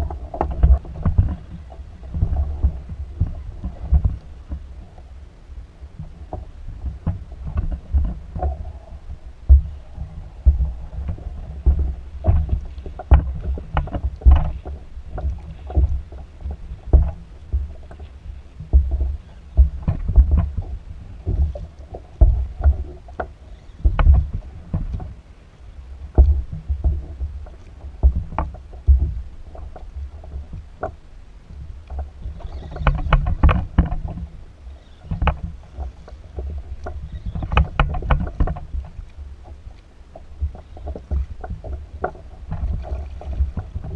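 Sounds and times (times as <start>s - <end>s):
water slapping kayak hull: 0.0s - 43.9s
sharp knocks on hull: 9.5s - 9.8s, 10.4s - 16.0s, 18.6s - 21.6s.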